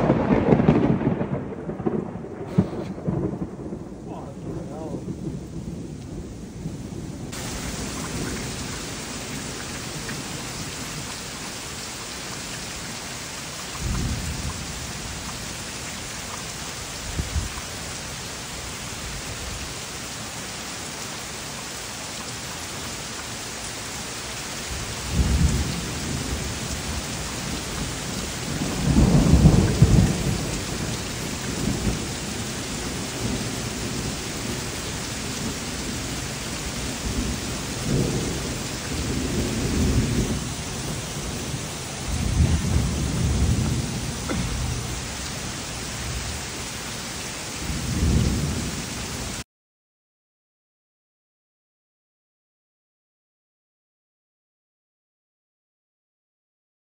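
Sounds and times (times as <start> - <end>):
thunder rolling: 0.0 - 10.4, 24.7 - 34.7, 35.3 - 46.4, 47.6 - 48.8
heavy rain: 0.0 - 49.5.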